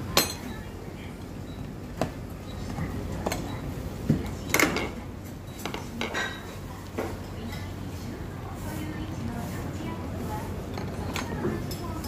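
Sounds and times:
tableware clinking: 0.1s - 0.7s, 4.4s - 6.7s, 10.7s - 12.0s.

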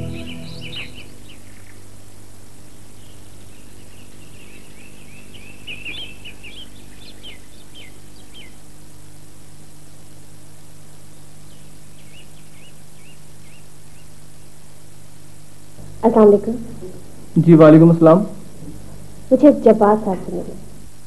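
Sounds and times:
low hum: 0.0s - 1.4s
small birds chirping: 0.0s - 1.9s, 2.7s - 8.7s, 11.4s - 14.6s.

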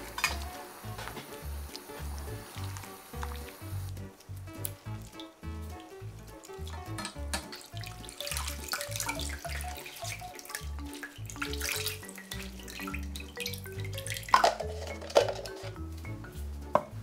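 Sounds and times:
water splashing in steel bowl: 0.0s - 4.0s, 4.6s - 15.8s
background music with bass line: 0.0s - 17.0s.

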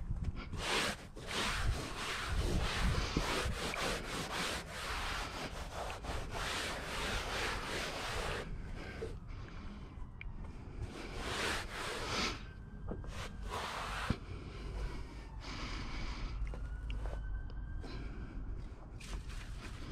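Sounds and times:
hands brushing carpet: 0.5s - 9.1s, 10.8s - 12.4s, 13.0s - 14.2s.

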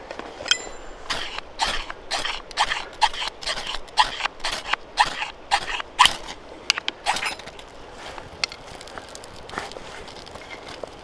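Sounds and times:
faint fire crackling: 0.0s - 11.0s
knife scraping fire steel: 0.4s - 6.4s, 7.0s - 8.2s.

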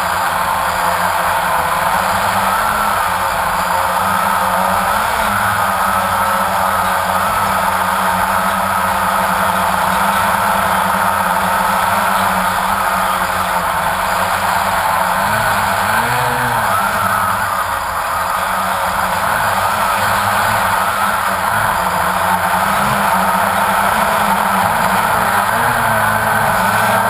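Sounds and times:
drone motors whining: 0.0s - 27.0s.

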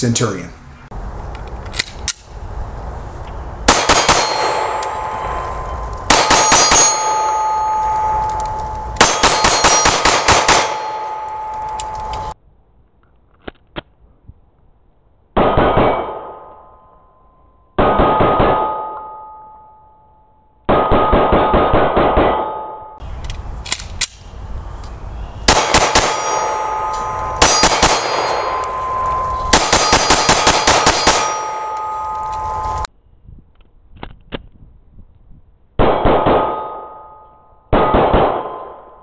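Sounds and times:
pistol shots: 3.7s - 12.2s, 25.5s - 32.7s, 37.7s - 38.9s
steel target ringing: 3.7s - 12.4s, 25.5s - 32.9s.

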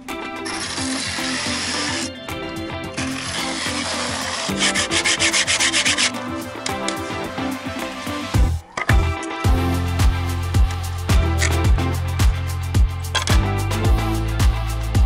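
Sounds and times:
jigsaw cutting wood: 0.5s - 2.1s, 2.9s - 6.1s.

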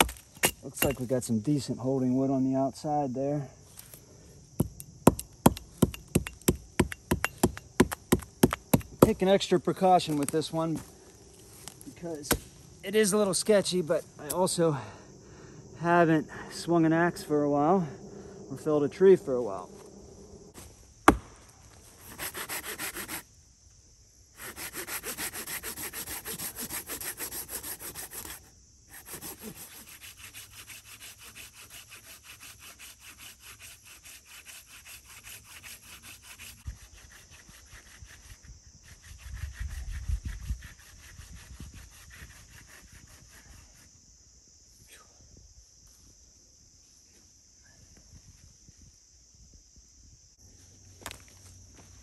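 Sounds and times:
pull saw cutting hardwood: 22.1s - 23.2s, 24.4s - 38.0s.

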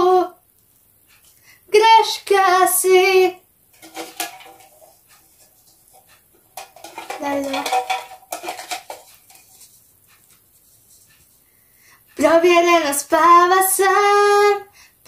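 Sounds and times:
paper slips rattling in box: 6.6s - 9.9s.

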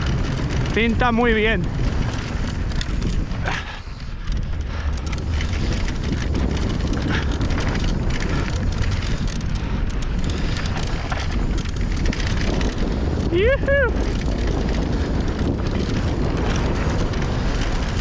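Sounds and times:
bike clicks and knocks: 0.0s - 18.0s
bike tyres rolling on dirt: 0.0s - 18.0s
wind buffeting microphone: 0.0s - 18.0s.

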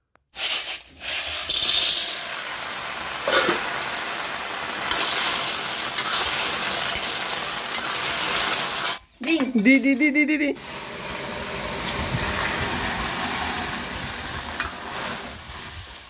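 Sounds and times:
snails sizzling in pan: 0.4s - 9.2s, 10.6s - 16.0s.

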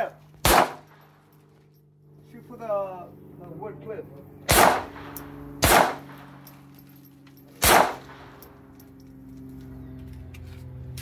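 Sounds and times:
handgun shots: 0.4s - 1.0s, 4.5s - 6.3s, 7.6s - 8.4s.

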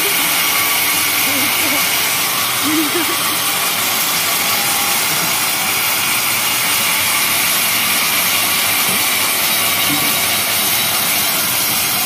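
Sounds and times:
band sawmill running: 0.0s - 12.0s.

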